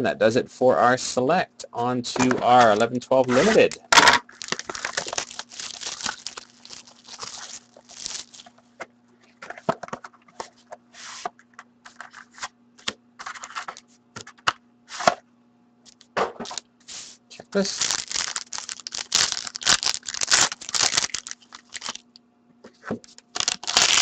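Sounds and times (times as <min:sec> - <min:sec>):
plastic shrink-wrap tearing: 0:03.3 - 0:08.5, 0:17.6 - 0:22.2, 0:23.0 - 0:24.0.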